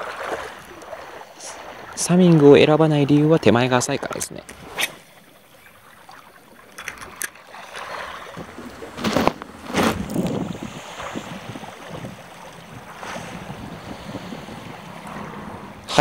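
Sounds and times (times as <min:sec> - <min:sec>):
water running and lapping: 0:00.0 - 0:16.0
rustling noise bursts: 0:08.5 - 0:11.3.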